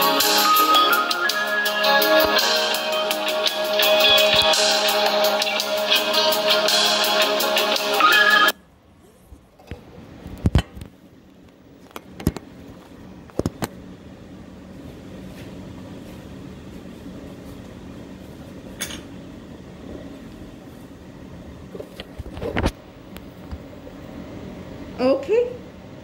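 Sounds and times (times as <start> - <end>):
mechanical hum: 0.0 - 26.0.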